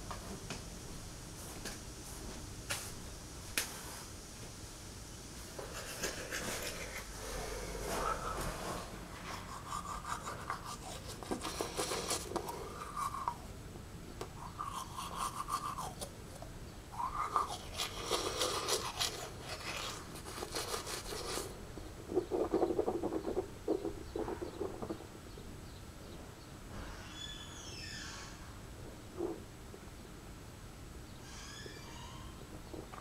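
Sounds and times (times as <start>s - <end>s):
person breathing rapidly and heavily: 5.7s - 13.5s.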